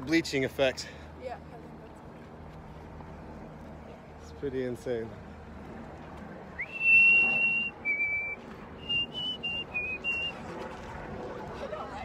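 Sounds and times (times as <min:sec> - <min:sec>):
person whistling a tune: 0:06.6 - 0:10.3.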